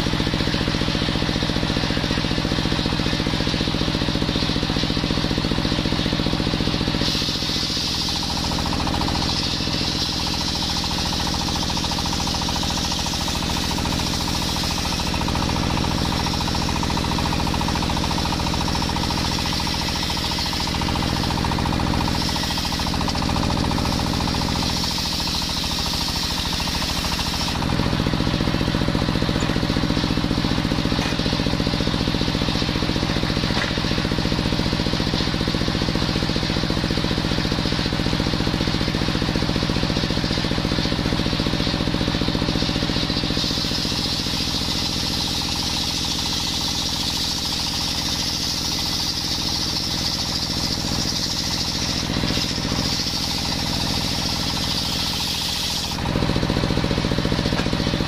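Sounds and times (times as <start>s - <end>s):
stationary engine running: 0.0s - 58.0s
circular saw ripping a log: 19.1s - 29.8s, 47.0s - 58.0s.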